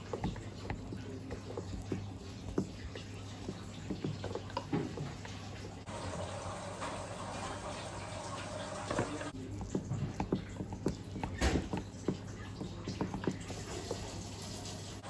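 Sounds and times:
chopsticks clicking and tapping: 0:00.0 - 0:05.8, 0:09.3 - 0:14.2.

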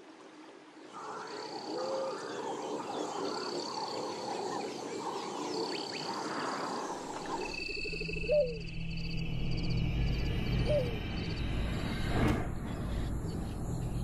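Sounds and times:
chorus of wild animal calls: 0:00.9 - 0:08.6.

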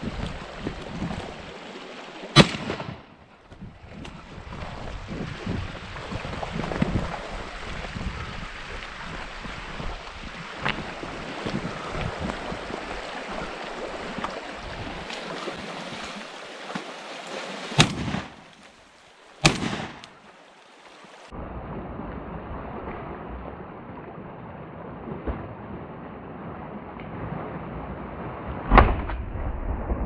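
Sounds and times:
mountain stream rushing: 0:00.0 - 0:03.4, 0:04.1 - 0:21.4
shotgun shots: 0:02.4 - 0:03.1, 0:17.8 - 0:18.4, 0:19.4 - 0:20.1.

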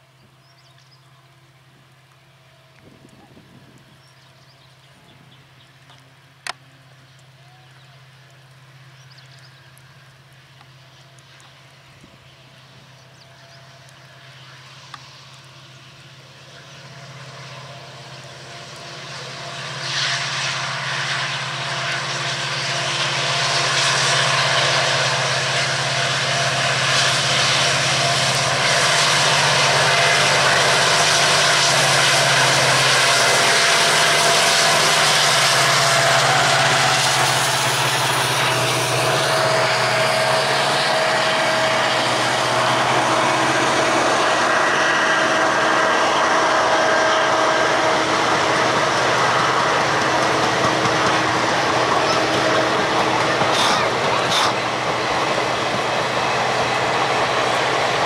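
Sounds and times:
diesel locomotive engine drone: 0:00.0 - 0:58.0
train wheels on rails: 0:08.2 - 0:58.0.

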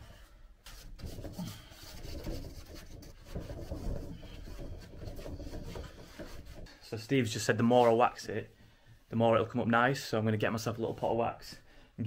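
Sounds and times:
cloth rubbing wood: 0:00.6 - 0:08.6.

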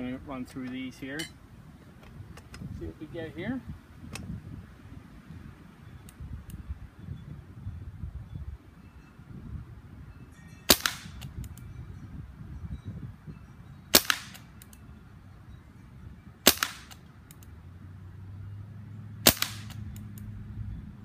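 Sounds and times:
air rifle shots: 0:10.7 - 0:11.4, 0:13.9 - 0:14.6, 0:16.4 - 0:17.1, 0:19.2 - 0:20.1.

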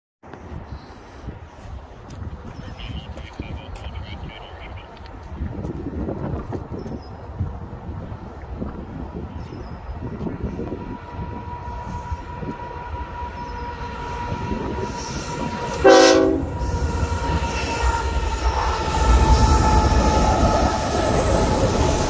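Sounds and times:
locomotive engines rumbling: 0:09.2 - 0:22.0
train horn blast: 0:10.6 - 0:18.6.

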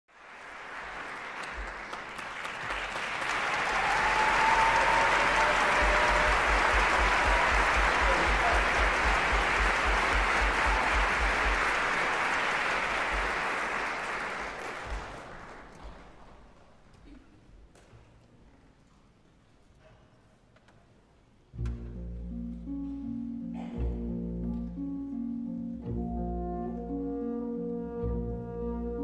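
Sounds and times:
audience applauding: 0:00.1 - 0:16.5.

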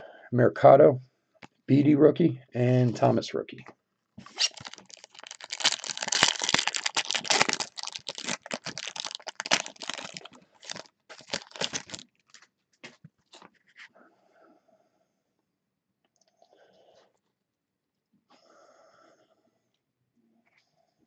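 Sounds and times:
foil wrapper tearing and crinkling: 0:04.3 - 0:12.5.

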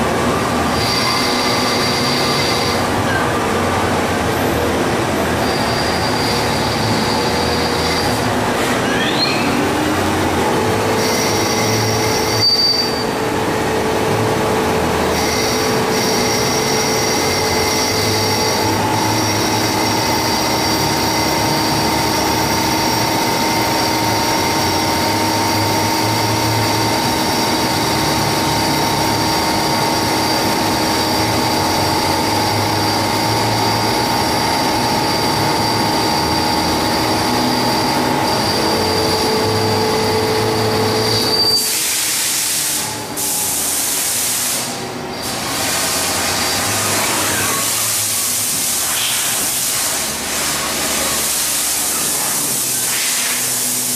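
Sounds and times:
lathe cutting metal whine: 0:00.0 - 0:53.9
noisy wash: 0:00.0 - 0:53.9.

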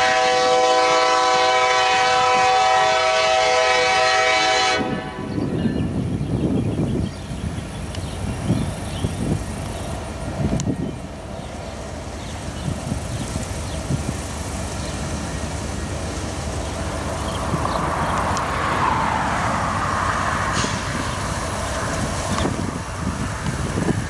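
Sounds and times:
diesel locomotive engine rumble: 0:00.0 - 0:24.0
rushing noise of moving train: 0:00.0 - 0:24.0
car passing: 0:13.6 - 0:24.0.

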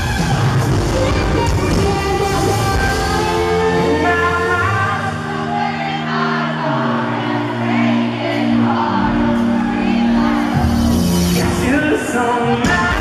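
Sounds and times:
electric guitar: 0:00.0 - 0:13.0
live country-rock band: 0:00.0 - 0:13.0
person singing: 0:00.1 - 0:13.0.

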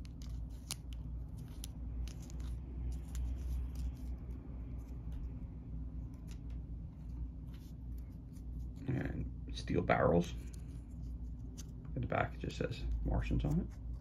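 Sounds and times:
cardboard discs clicking: 0:00.0 - 0:04.1
low steady hum: 0:00.0 - 0:14.0.

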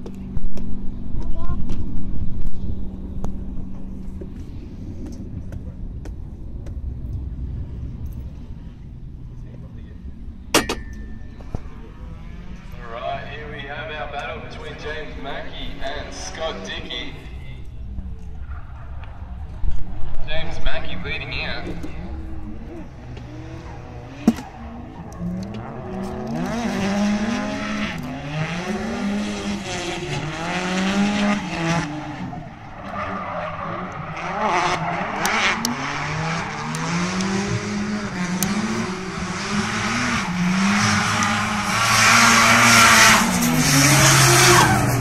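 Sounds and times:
car engine revving: 0:00.0 - 0:45.0
tyres squealing and skidding: 0:11.6 - 0:20.8, 0:22.0 - 0:28.5, 0:31.4 - 0:37.9, 0:38.9 - 0:45.0.

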